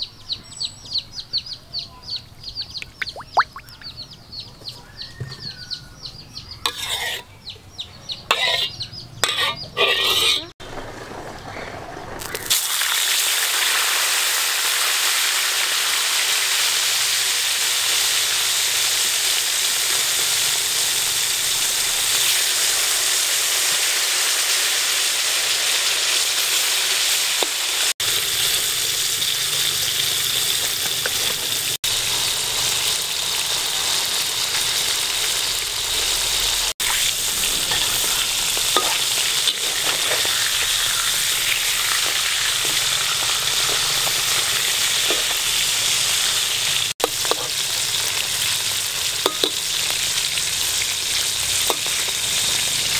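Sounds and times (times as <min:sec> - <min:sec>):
metal spatula stirring in wok: 0:06.7 - 0:07.3, 0:08.3 - 0:10.5, 0:36.8 - 0:44.4, 0:47.0 - 0:47.6
fish sizzling in hot oil: 0:12.2 - 0:52.9.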